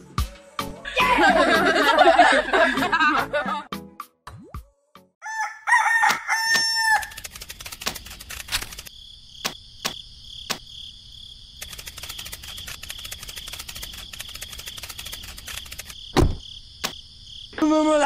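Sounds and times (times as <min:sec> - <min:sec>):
rooster crowing: 0:05.2 - 0:07.2
insects chirring: 0:05.9 - 0:18.0
scattered ticks: 0:07.0 - 0:10.6, 0:11.6 - 0:16.0.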